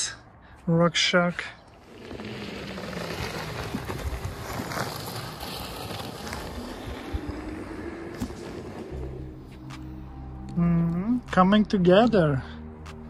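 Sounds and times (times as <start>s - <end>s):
tyres rolling on gravel: 1.3s - 9.6s.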